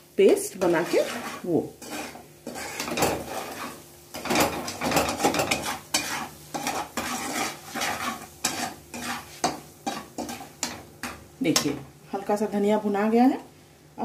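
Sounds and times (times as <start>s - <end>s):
butter sizzling: 0.0s - 12.9s
spatula scraping a pan: 0.4s - 11.8s.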